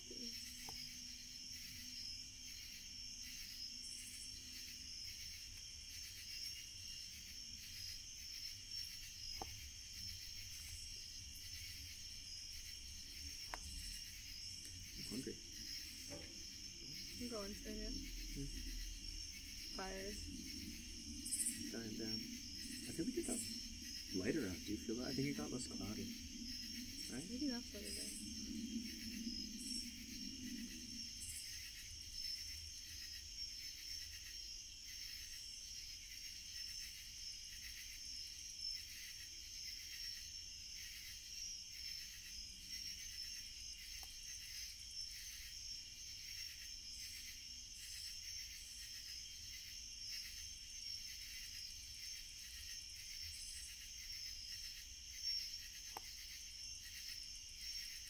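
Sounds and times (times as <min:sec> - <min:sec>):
night insects trilling: 0:00.0 - 0:58.0
faint clicks: 0:55.9 - 0:56.1.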